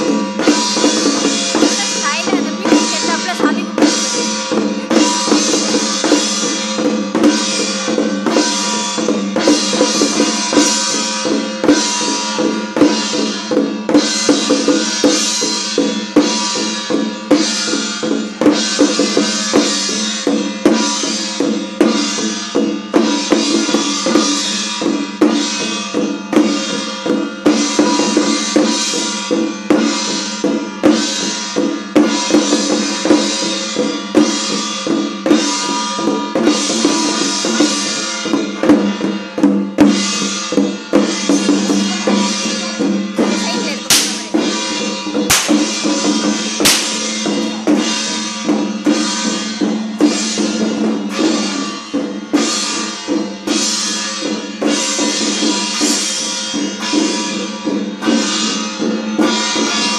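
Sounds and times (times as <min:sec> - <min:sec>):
fast drum and cymbal percussion: 0:00.0 - 0:59.9.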